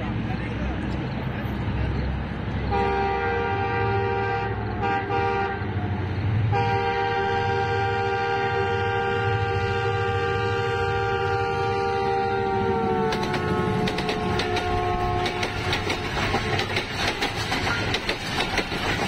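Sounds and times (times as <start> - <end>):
train rumbling: 0.0 - 19.0
train horn blasts: 2.7 - 5.8, 6.5 - 16.2.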